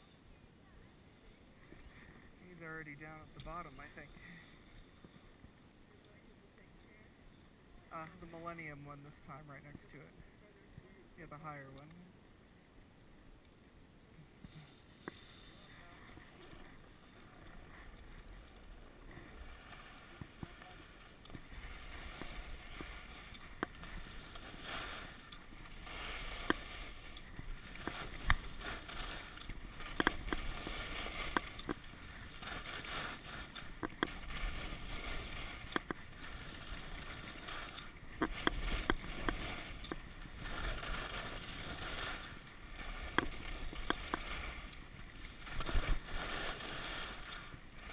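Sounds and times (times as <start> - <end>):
skis scraping over snow: 1.3 - 5.3, 14.5 - 47.9.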